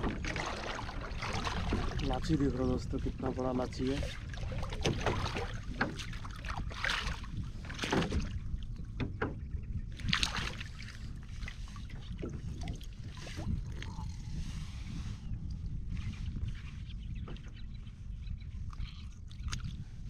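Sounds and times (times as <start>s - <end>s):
water splashing: 0.0s - 8.5s, 10.0s - 14.2s
wind rumble on microphone: 0.0s - 20.0s.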